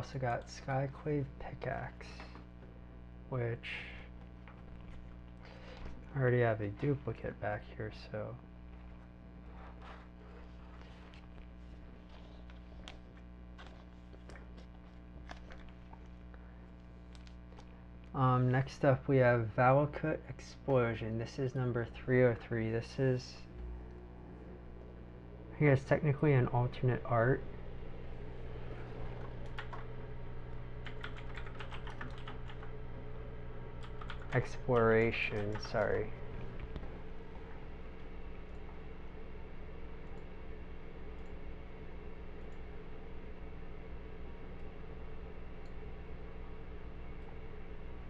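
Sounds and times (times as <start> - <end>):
low electrical hum: 0.0 - 48.0
keyboard typing clicks: 29.2 - 29.8, 30.8 - 32.7, 33.8 - 34.4, 35.3 - 35.9.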